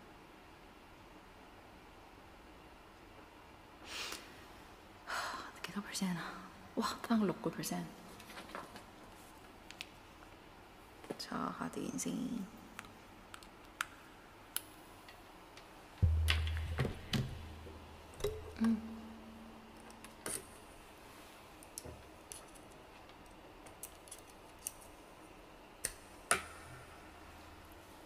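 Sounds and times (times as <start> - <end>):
low hum: 16.0 - 20.9.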